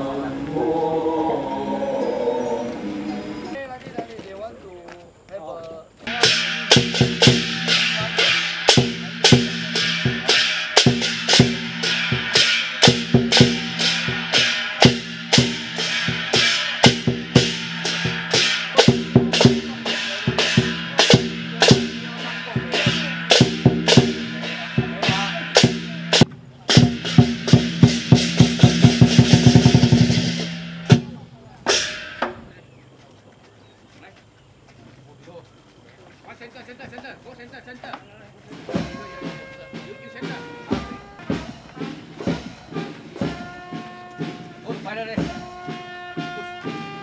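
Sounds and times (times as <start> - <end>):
sustained low tone: 0.0 - 3.6
drums beating a steady pulse: 6.0 - 32.6, 37.7 - 47.0.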